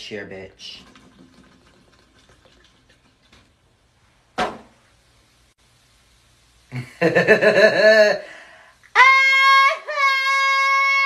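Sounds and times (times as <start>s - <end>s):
plastic bottle set on metal table: 4.4s - 4.7s
person singing a wavering cry: 8.9s - 11.0s.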